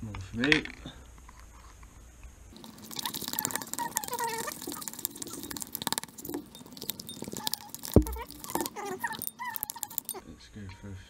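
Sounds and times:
slime stirring sticky clicking: 0:02.5 - 0:10.2
short squeaks: 0:02.9 - 0:10.2.

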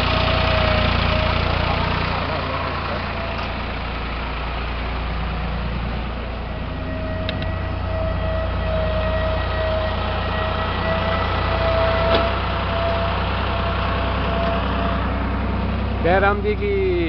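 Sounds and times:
road noise: 0:00.0 - 0:17.0
tractor diesel engine under load: 0:00.0 - 0:17.0
steady whine: 0:06.2 - 0:11.2.

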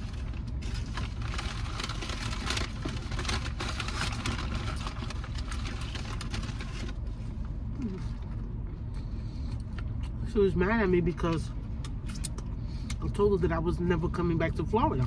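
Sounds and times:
crunching and chewing chicken wings: 0:00.0 - 0:10.3, 0:11.8 - 0:13.2
car engine idling: 0:00.0 - 0:15.0.

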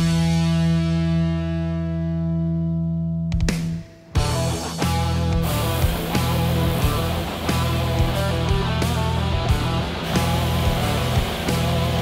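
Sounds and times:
rock music with guitar: 0:00.0 - 0:12.0.

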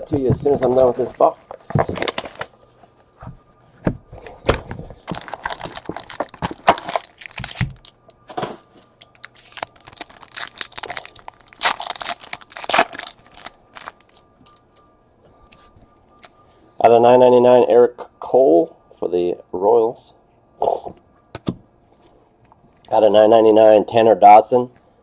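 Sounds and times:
card pack wrappers tearing: 0:00.6 - 0:02.6, 0:05.1 - 0:08.0, 0:09.1 - 0:14.2.

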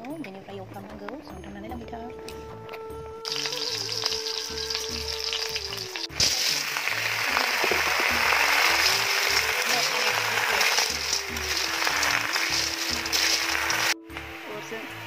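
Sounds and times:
food sizzling in hot oil: 0:03.2 - 0:14.0.

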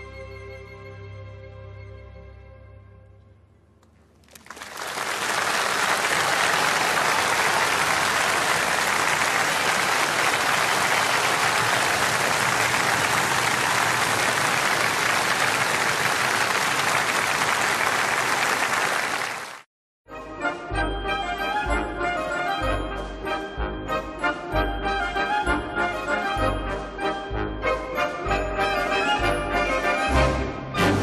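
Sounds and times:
music: 0:00.0 - 0:04.0, 0:20.0 - 0:31.0
audience applauding: 0:04.2 - 0:19.7.

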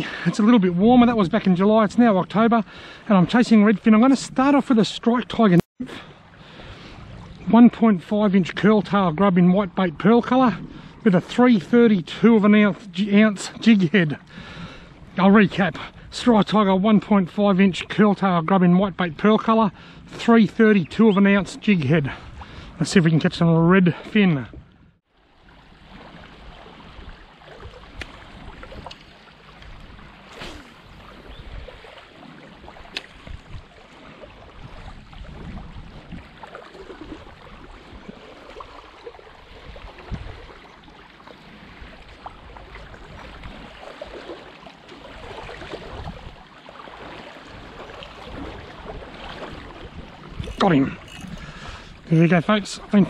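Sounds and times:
water lapping at shore: 0:00.0 - 0:53.0
wind on microphone: 0:29.6 - 0:31.9, 0:32.6 - 0:40.8, 0:45.2 - 0:46.4, 0:47.5 - 0:52.0.

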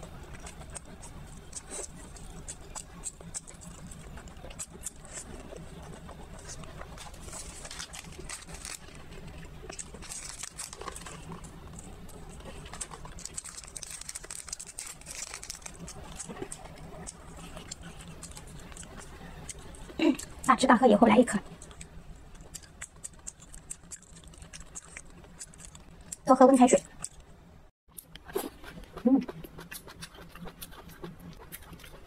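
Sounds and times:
chewing and mouth sounds: 0:00.0 - 0:20.6, 0:21.3 - 0:27.3, 0:27.9 - 0:32.0
plastic sachet crinkling: 0:06.4 - 0:19.0.

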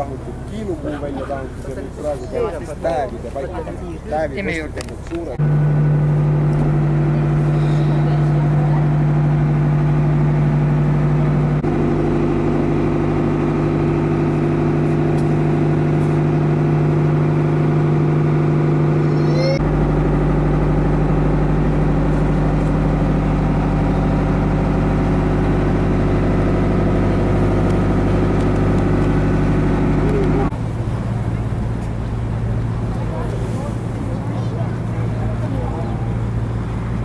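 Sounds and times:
boat engine low hum: 0:00.0 - 0:37.0.

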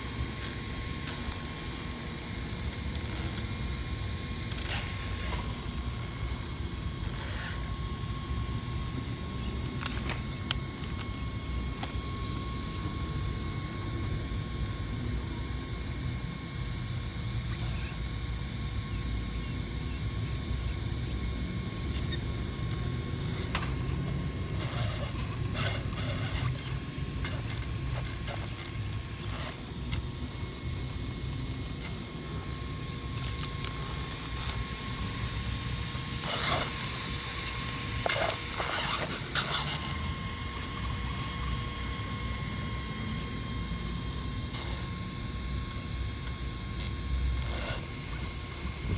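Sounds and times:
electric toy car motor whining: 0:00.0 - 0:48.9
gears and tyres scraping on rock: 0:24.6 - 0:29.6, 0:36.2 - 0:36.8, 0:37.4 - 0:40.1, 0:47.4 - 0:47.9.

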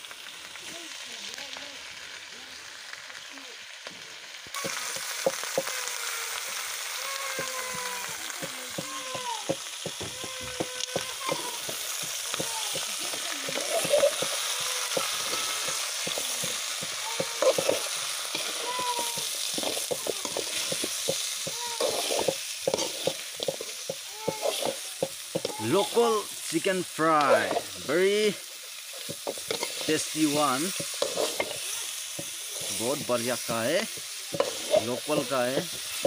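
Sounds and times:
chicken sizzling in hot oil: 0:00.0 - 0:36.0
spatula scraping and knocking pan: 0:07.3 - 0:26.0, 0:27.2 - 0:28.0, 0:28.9 - 0:36.0.

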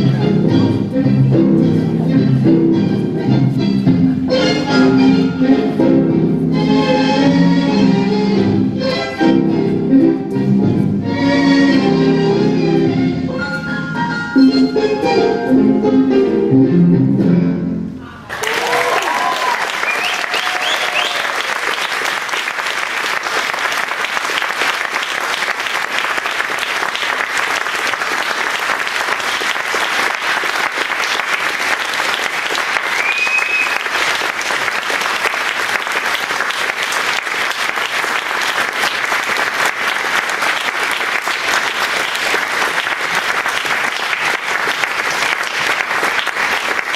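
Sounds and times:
audience applauding: 0:18.3 - 0:46.9.

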